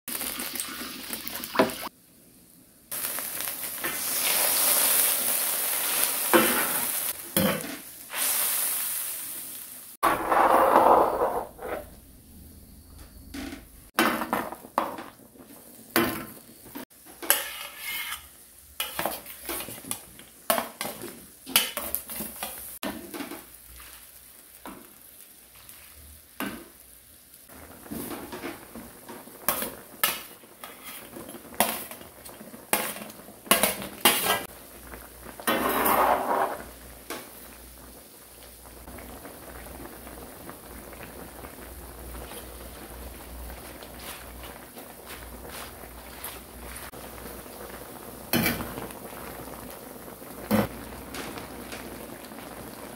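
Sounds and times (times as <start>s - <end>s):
broth bubbling and sizzling: 0.1s - 10.2s, 13.9s - 52.9s.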